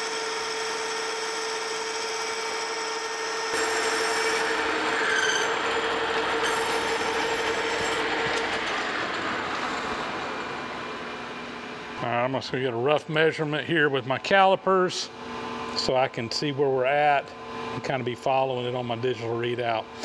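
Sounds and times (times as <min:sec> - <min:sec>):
metal lathe whining: 0:00.0 - 0:11.6.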